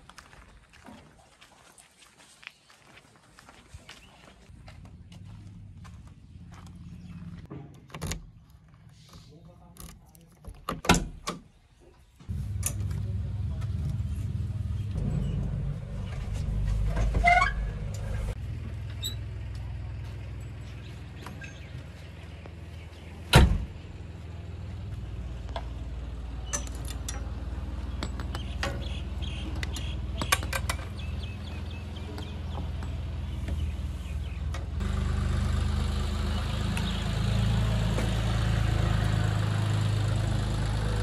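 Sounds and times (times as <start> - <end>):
diesel engine starting and idling: 12.2 - 41.0.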